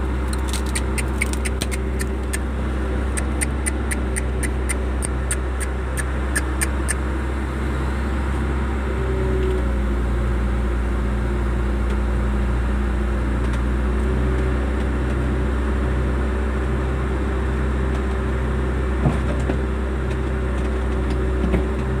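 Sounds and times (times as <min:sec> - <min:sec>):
engine humming with pulsing tone: 0:00.0 - 0:22.0
sharp ticks: 0:00.3 - 0:02.4, 0:03.2 - 0:07.0.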